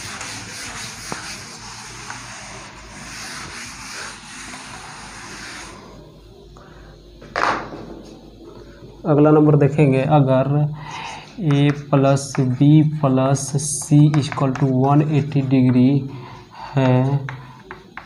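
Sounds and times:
board eraser rubbing on board: 0:00.0 - 0:05.8.

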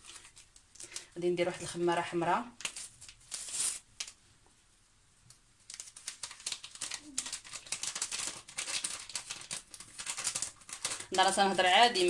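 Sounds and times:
paper sachet tearing and crinkling: 0:00.0 - 0:01.2, 0:02.5 - 0:04.2, 0:05.6 - 0:12.0.

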